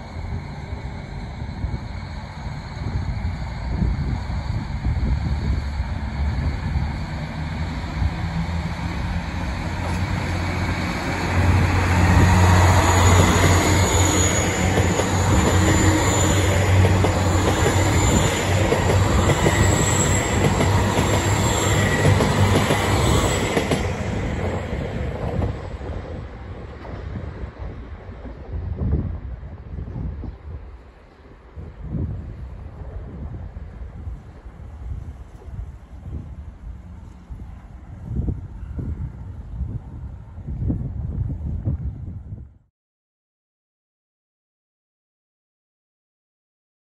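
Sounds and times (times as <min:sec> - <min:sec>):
wheels squealing on rails: 0:00.0 - 0:24.8
diesel train engines rumbling: 0:00.0 - 0:41.4.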